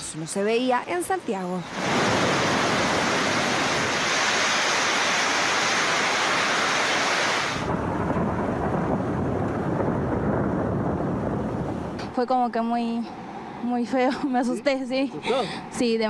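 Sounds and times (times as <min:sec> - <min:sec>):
heavy rain hissing: 0:00.6 - 0:12.0
deep low rumble: 0:07.6 - 0:14.0.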